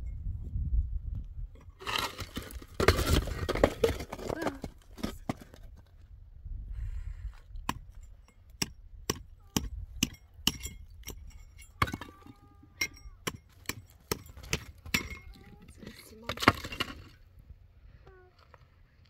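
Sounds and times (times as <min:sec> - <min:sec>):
concrete pieces clinking together: 0:10.0 - 0:17.2.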